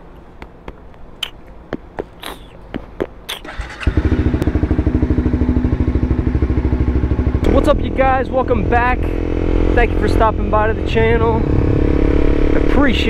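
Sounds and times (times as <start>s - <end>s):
motorcycle engine starting and idling: 3.4s - 13.0s.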